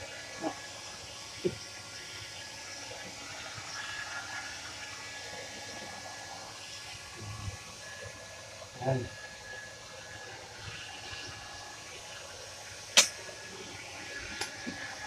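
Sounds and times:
hair dryer blowing: 3.0 - 15.0.

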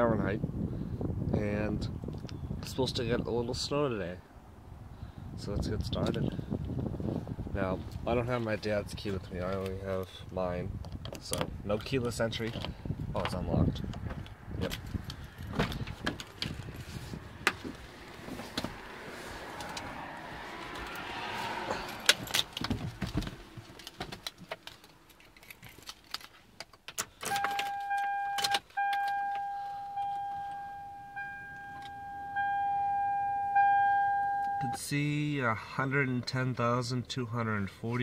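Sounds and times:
car keys jangling: 21.8 - 34.8
dashboard warning chime: 27.3 - 34.8.

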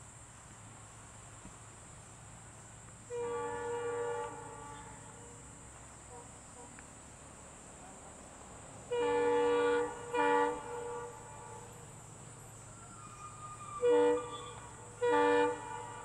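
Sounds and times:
locomotive horn blasts: 3.1 - 5.4, 8.9 - 11.9, 13.0 - 16.0.

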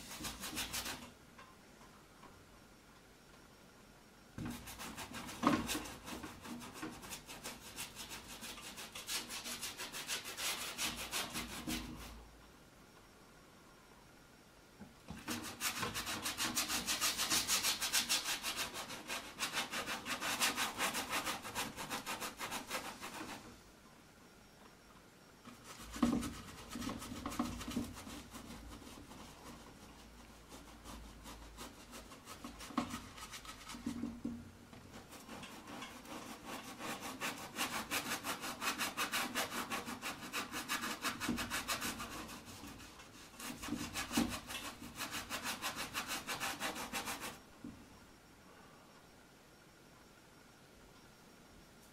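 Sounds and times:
paintbrush scrubbing canvas: 0.0 - 1.1, 4.4 - 12.2, 15.2 - 23.5, 25.5 - 34.2, 34.9 - 47.4.

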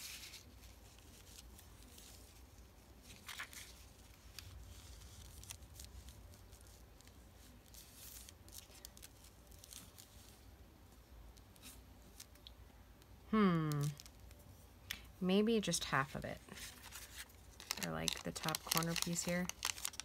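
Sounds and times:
paper rustling: 0.0 - 10.5, 16.4 - 20.0.

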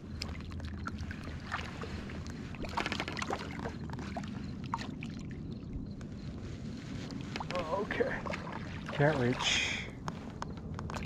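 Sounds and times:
water lapping against float tube: 0.0 - 5.6, 7.0 - 11.0
steady low rumble: 0.0 - 11.0
small splashes: 0.2 - 5.3, 7.3 - 9.9.

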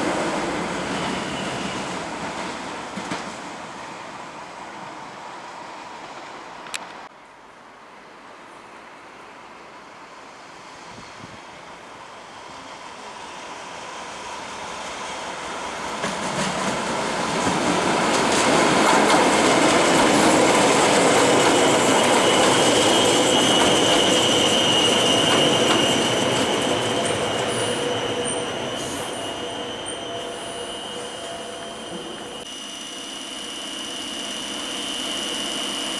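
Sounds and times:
train wheels rumbling on rails: 0.0 - 7.1, 10.1 - 32.5
high wheel squeal: 0.8 - 2.1, 20.9 - 35.9.

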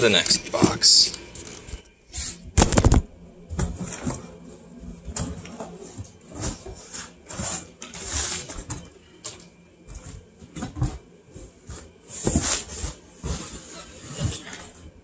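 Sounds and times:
cardboard box rustling and scraping: 5.6 - 8.8, 9.9 - 14.8.

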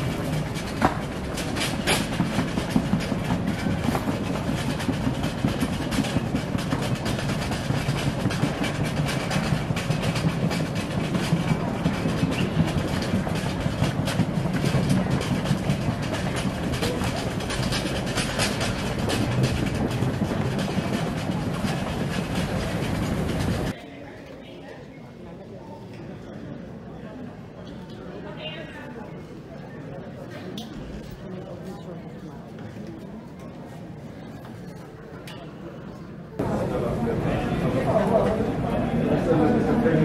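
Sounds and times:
luggage wheels clicking on tiles: 0.0 - 23.8
footsteps on tiled floor: 0.0 - 23.9.

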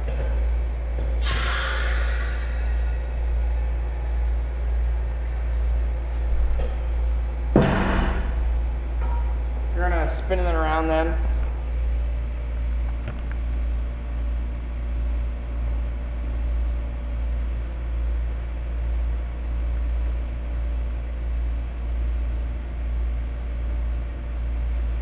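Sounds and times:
low mechanical hum: 0.0 - 25.0.

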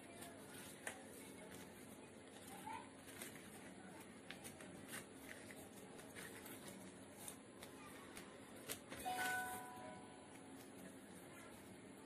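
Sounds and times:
paper rustling and crinkling: 0.0 - 9.7
low steady hum: 0.0 - 12.0.

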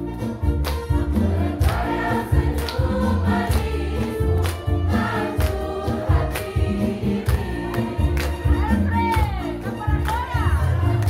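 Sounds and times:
backing music with heavy bass: 0.0 - 11.0
group singing into a microphone: 1.0 - 8.4.

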